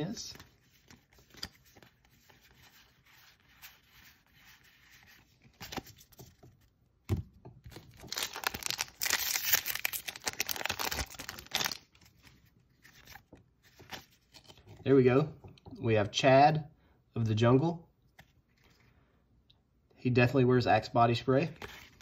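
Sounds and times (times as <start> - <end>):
handling of cards: 0.0 - 15.7, 18.1 - 19.0, 21.4 - 22.0
foil wrapper tearing and crinkling: 7.9 - 11.9.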